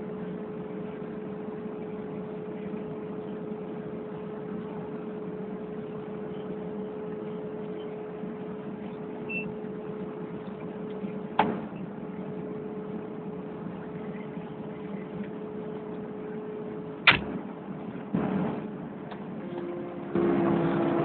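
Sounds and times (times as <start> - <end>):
excavator diesel engine running: 9.0 - 21.0.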